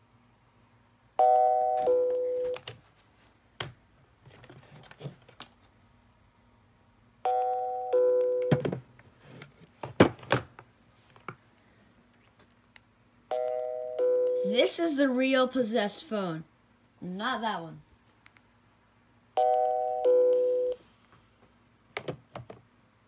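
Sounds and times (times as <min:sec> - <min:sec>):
cordless phone two-note ringing: 0:01.2 - 0:02.6, 0:07.3 - 0:08.6, 0:13.3 - 0:14.5, 0:19.4 - 0:20.8.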